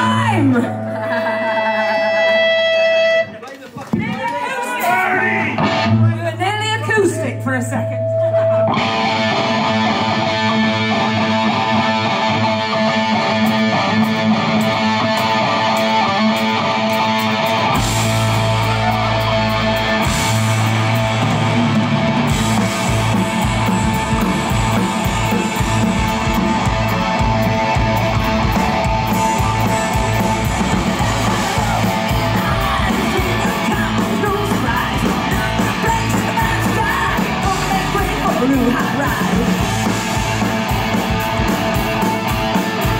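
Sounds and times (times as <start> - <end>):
electric guitars: 0.0 - 42.9
deep bass: 17.6 - 42.9
fast drum beat: 17.8 - 42.9.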